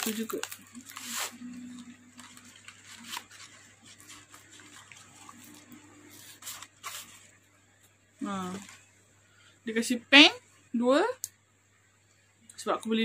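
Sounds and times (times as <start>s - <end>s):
packaging rustling: 0.0s - 7.4s, 8.4s - 8.9s
faint low hum: 0.0s - 13.0s.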